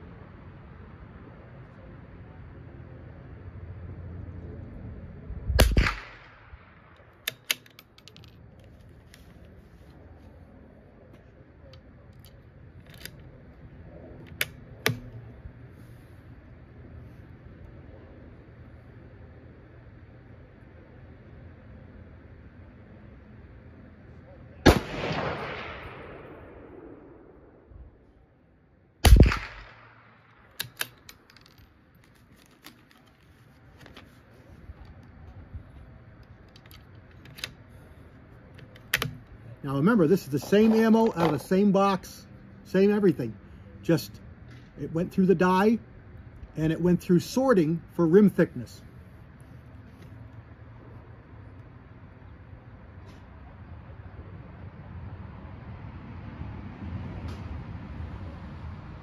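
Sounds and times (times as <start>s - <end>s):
rifle shot: 5.6s - 7.5s, 24.6s - 27.7s, 29.0s - 31.0s
rifle bolt metallic clicks: 5.6s - 9.3s, 11.7s - 13.3s, 14.2s - 15.2s, 29.1s - 33.2s, 36.2s - 37.7s, 38.5s - 39.4s.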